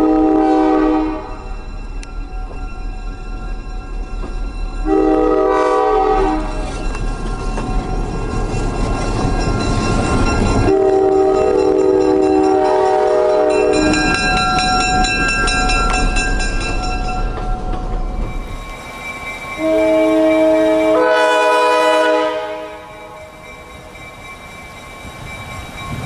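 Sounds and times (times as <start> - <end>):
locomotive air horn: 0.0 - 1.4, 4.8 - 6.6, 10.7 - 13.9, 19.6 - 23.3
diesel locomotive engine rumble: 0.0 - 26.0
wheels clicking on rail joints: 1.5 - 26.0.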